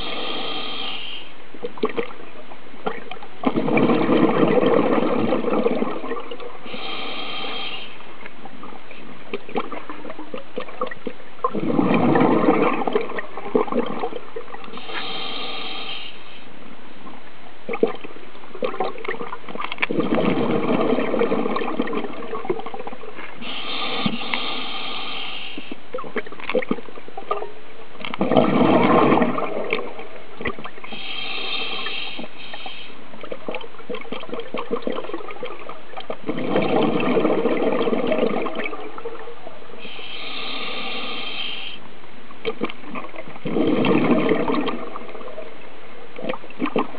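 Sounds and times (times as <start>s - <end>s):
regulator hissing inhale: 0.0s - 1.4s, 6.6s - 8.1s, 14.7s - 16.5s, 23.4s - 25.8s, 30.8s - 33.0s, 39.8s - 41.8s
steady background hiss: 0.0s - 43.4s, 44.0s - 46.9s
gurgling exhaled bubbles: 2.8s - 7.4s, 9.3s - 15.7s, 17.7s - 24.9s, 25.9s - 32.4s, 33.1s - 41.3s, 42.4s - 46.9s.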